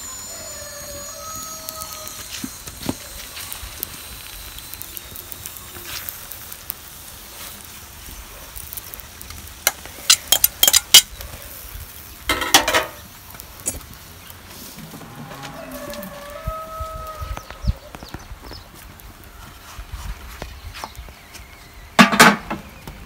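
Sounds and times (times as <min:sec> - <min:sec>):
metal utensils clinking on cookware: 0:09.7 - 0:11.1, 0:12.3 - 0:13.0.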